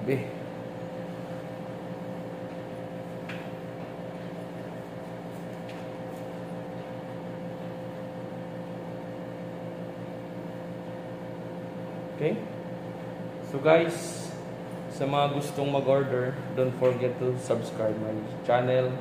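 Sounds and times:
steady mechanical hum: 0.0 - 19.0.

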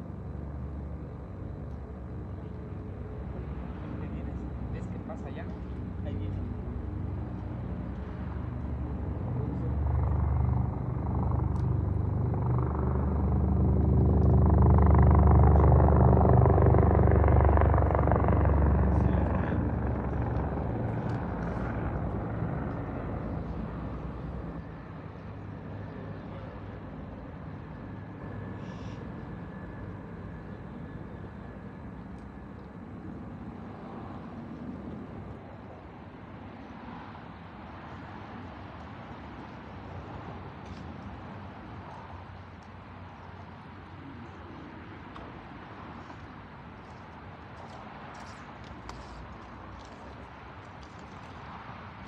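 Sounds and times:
heavy engine passing by: 3.6 - 25.6.

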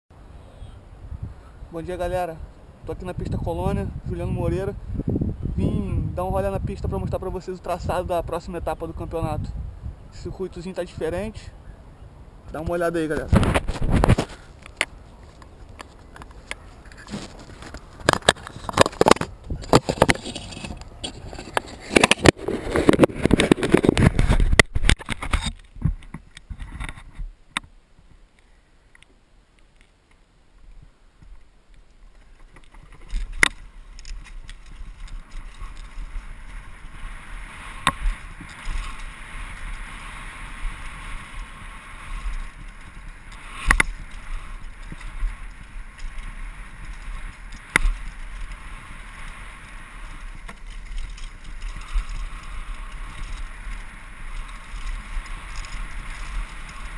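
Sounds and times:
wind rush on microphone: 0.2 - 27.4, 32.2 - 56.9
bike clatter and rattling: 12.6 - 27.2, 32.1 - 56.9.

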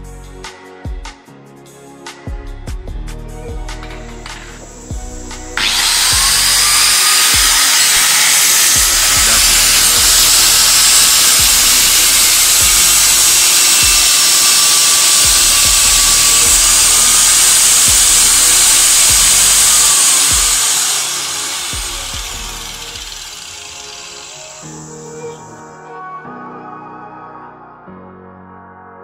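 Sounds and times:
background music with steady beat: 0.0 - 28.0
angle grinder cutting steel: 3.8 - 25.3.

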